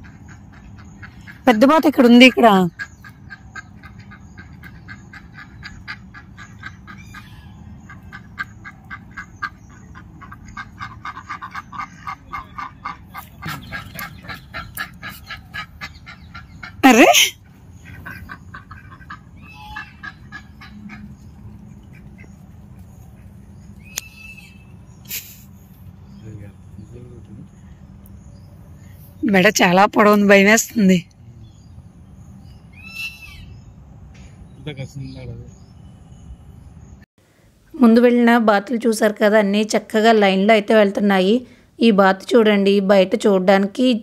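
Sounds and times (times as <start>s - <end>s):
ducks quacking: 0.0s - 25.4s.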